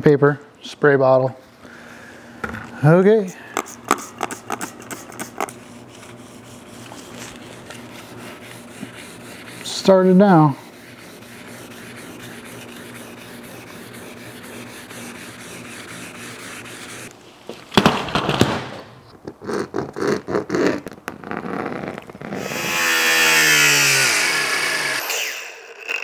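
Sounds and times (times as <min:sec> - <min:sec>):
sandpaper rubbing on metal panel: 0:03.6 - 0:17.1
angle grinder running: 0:22.4 - 0:26.0.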